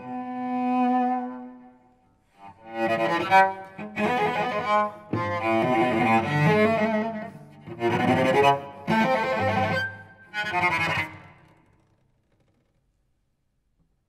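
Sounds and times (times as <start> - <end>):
bowed cello: 0.0 - 12.1.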